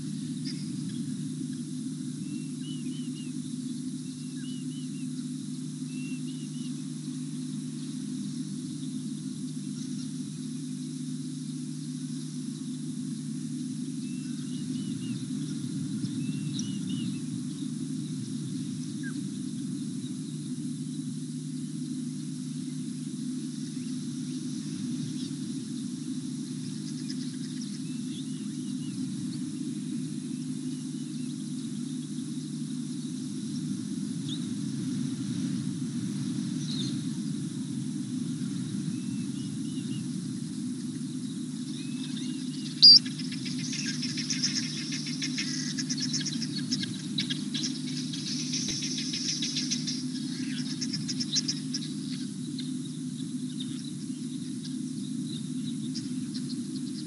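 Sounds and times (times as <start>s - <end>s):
high insect hiss: 0.0s - 57.0s
steady low hum: 0.0s - 57.0s
short chirping calls: 42.0s - 52.7s.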